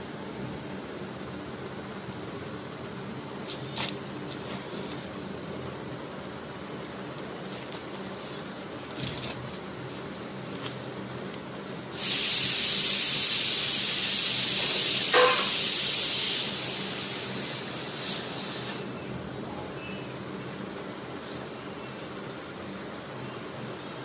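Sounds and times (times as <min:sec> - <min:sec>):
loud steady hiss: 0:00.0 - 0:19.1.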